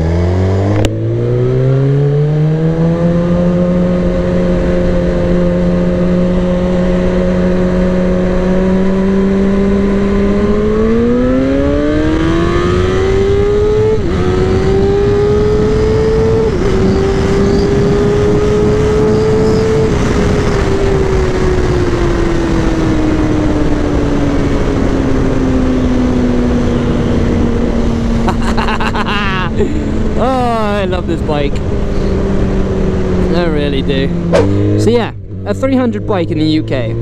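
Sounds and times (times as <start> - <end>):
motorcycle engine revving: 0.0 - 37.0
wind rush: 14.0 - 28.2, 29.5 - 35.4.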